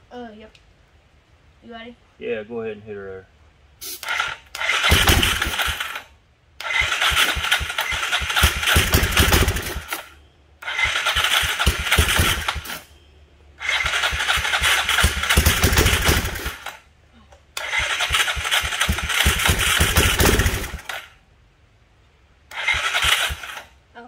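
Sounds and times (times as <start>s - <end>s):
engine cranking by starter: 3.9s - 12.9s, 13.6s - 16.8s, 17.6s - 21.2s, 22.5s - 23.8s.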